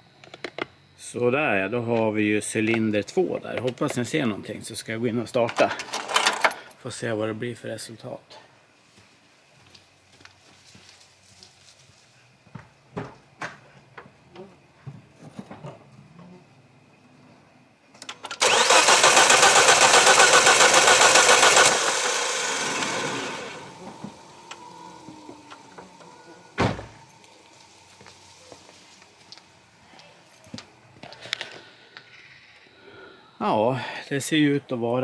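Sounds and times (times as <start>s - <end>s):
car engine cranking on starter: 18.0s - 27.2s.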